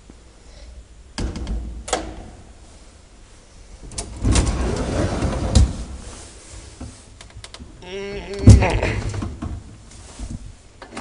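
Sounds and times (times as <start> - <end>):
elevator door rattling slide: 3.9 - 6.1.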